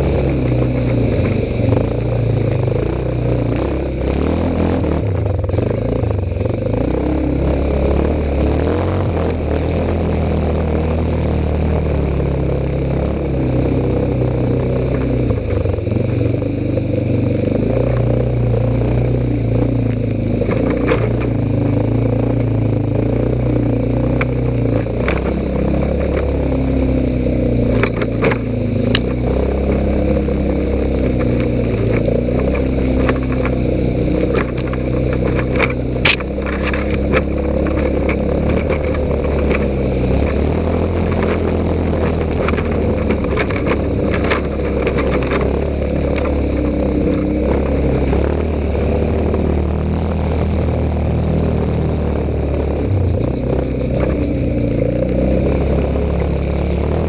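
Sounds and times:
atv engine running: 0.0s - 57.0s
sharp clicks and rattles: 19.3s - 50.6s, 52.2s - 57.0s.

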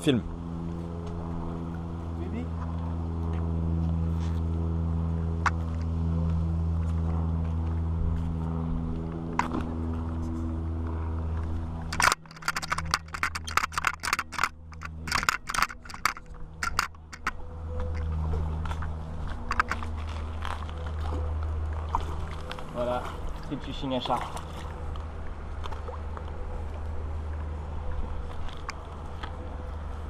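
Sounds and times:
low engine hum: 0.0s - 30.0s
camera handling clicks and scrapes: 11.9s - 18.1s.

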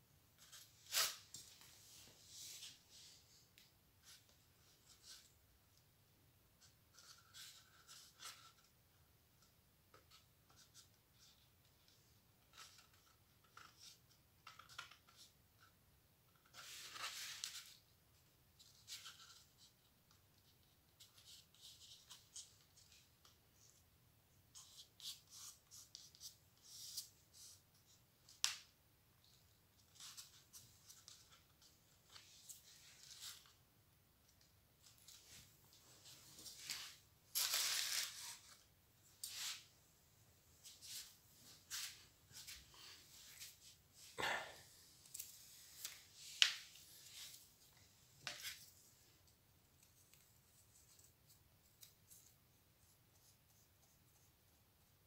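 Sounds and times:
paper rustling on cardboard: 34.8s - 38.6s
paper scrape: 36.4s - 38.6s.

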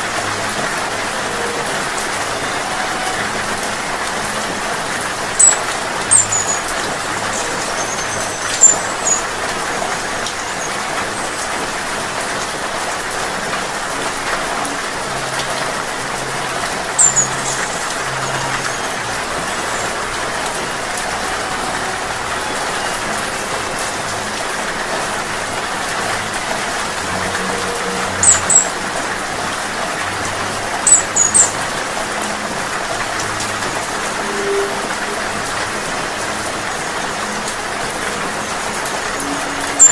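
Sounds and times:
rain pattering on leaves: 0.0s - 39.9s
hummingbird chirps: 5.3s - 11.0s, 16.8s - 20.6s, 27.3s - 28.8s, 30.8s - 31.6s, 34.2s - 34.9s.

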